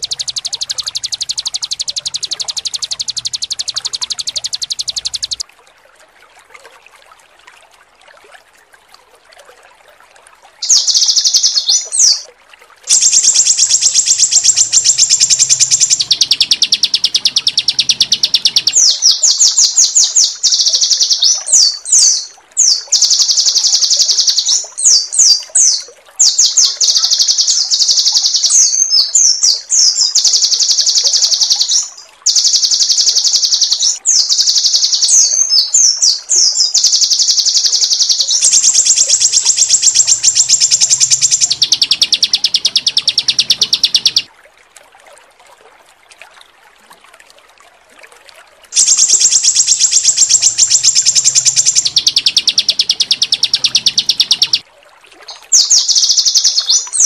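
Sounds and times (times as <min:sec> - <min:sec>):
bird sweeping notes: 0:00.0 - 0:05.4, 0:12.9 - 0:25.0, 0:26.2 - 0:44.3, 0:48.8 - 0:54.6
songbird harsh rapid trilling: 0:00.0 - 0:05.4, 0:10.6 - 0:12.2, 0:12.9 - 0:25.3, 0:26.2 - 0:44.3, 0:48.8 - 0:54.6.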